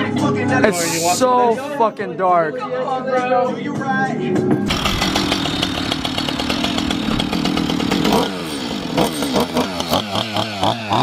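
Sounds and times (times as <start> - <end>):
chainsaw engine revving: 4.7 - 11.0.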